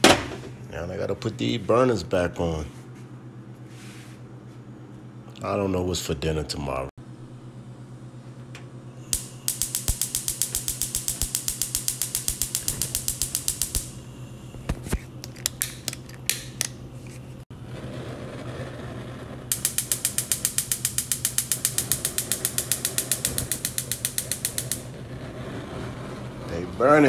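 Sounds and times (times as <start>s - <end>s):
low steady hum: 4.3s - 27.0s
gas stove igniter clicking: 8.6s - 16.8s, 19.5s - 25.0s.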